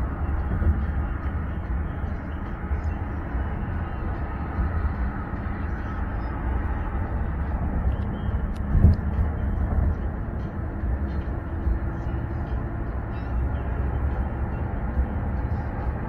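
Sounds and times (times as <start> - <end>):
road and engine rumble in car: 0.0 - 16.0.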